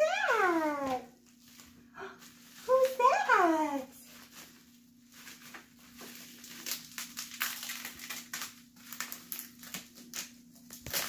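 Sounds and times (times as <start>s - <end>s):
packaging crinkling: 4.0s - 11.0s.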